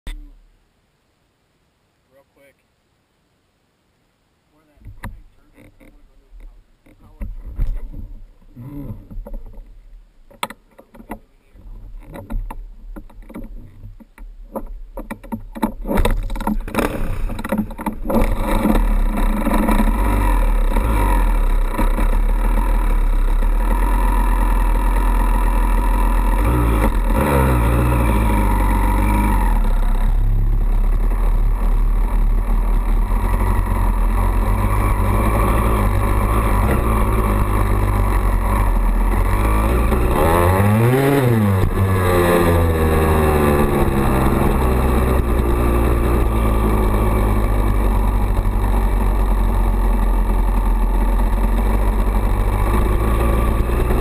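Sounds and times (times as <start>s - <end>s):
dirt bike engine running: 11.6s - 54.0s.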